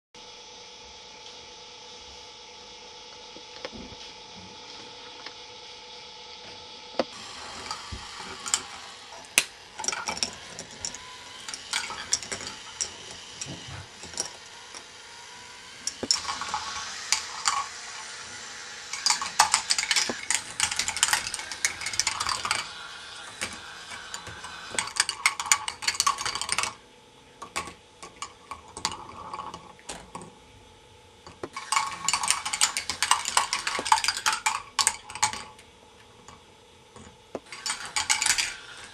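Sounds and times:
faint motor hum: 0.2 - 38.9
plastic balls clattering on tracks: 7.1 - 15.0, 15.8 - 26.8, 27.4 - 30.3, 31.3 - 35.6, 37.0 - 38.9.

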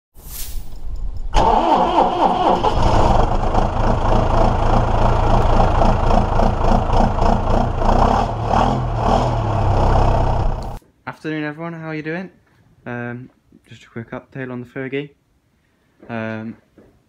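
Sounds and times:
engine starting and running: 1.3 - 10.8.

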